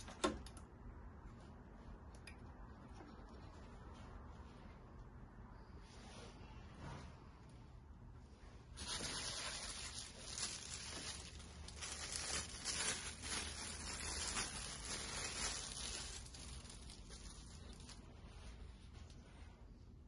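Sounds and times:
plastic wrap crinkling and tearing: 8.7s - 18.0s.

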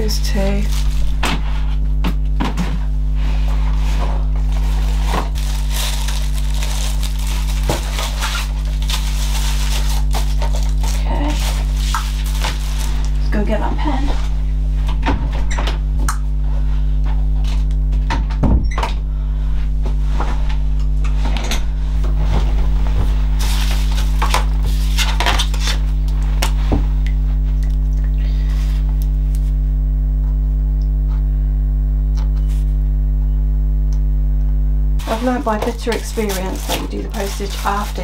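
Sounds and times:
steady low hum: 0.0s - 38.0s
packaging rustling and clicking: 4.4s - 13.2s, 35.0s - 38.0s.

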